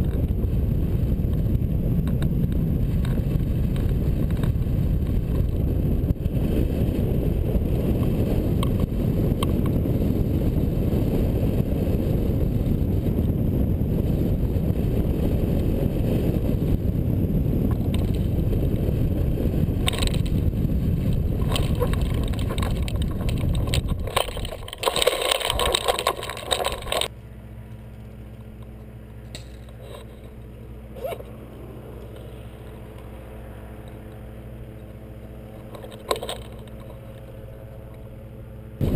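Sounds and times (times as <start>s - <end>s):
wind buffeting microphone: 0.0s - 27.1s, 29.6s - 38.9s
glider scraping and rattling on grass: 19.6s - 27.1s, 29.4s - 31.4s, 35.5s - 37.5s.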